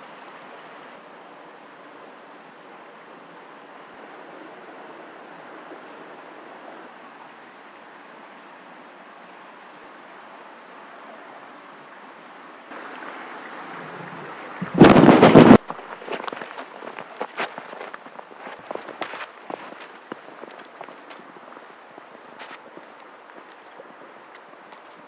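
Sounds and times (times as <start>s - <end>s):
outdoor ambience hiss: 0.0s - 25.0s
loud rushing burst: 13.7s - 15.6s.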